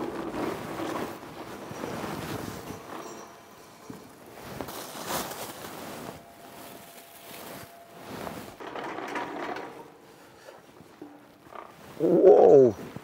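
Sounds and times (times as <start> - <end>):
plastic shower cap rustling: 3.9 - 8.6.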